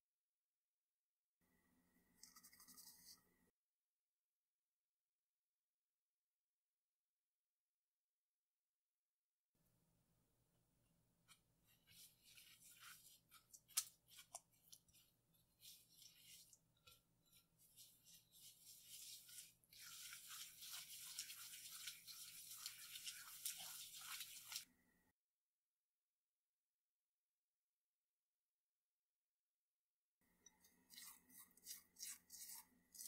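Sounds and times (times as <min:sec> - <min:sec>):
spatula scraping sugar on glass: 0:11.8 - 0:24.6, 0:30.4 - 0:33.0.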